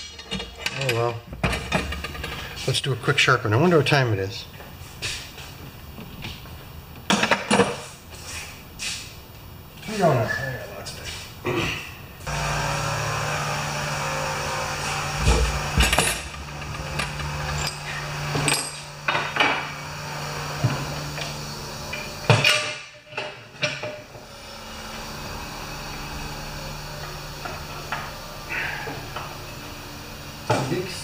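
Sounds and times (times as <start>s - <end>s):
tools knocking and clanking: 0.0s - 2.4s, 15.2s - 19.7s, 21.9s - 24.1s
steady low hum: 10.7s - 31.0s.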